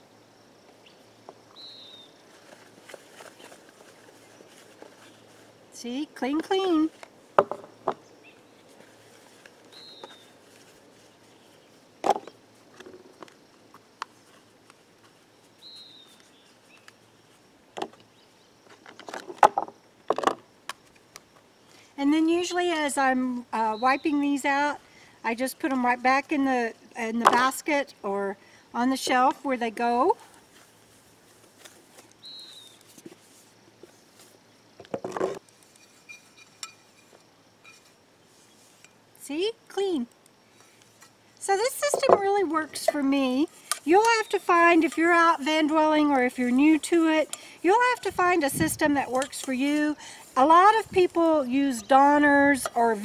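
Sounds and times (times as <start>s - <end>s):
bird chirping: 0.8s - 2.2s, 9.7s - 10.4s, 15.6s - 17.3s, 32.2s - 32.9s
camp dishes clattering: 34.8s - 38.0s.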